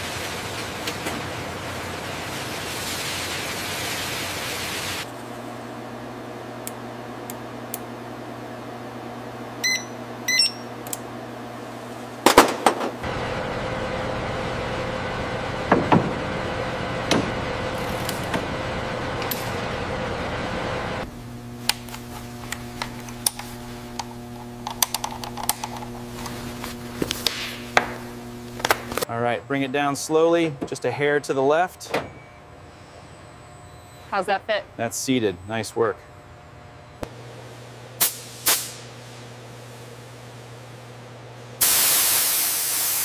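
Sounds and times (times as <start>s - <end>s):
steady hum: 5.0s - 43.0s
multimeter double beeps: 9.6s - 10.7s
steady machinery noise: 12.2s - 32.0s.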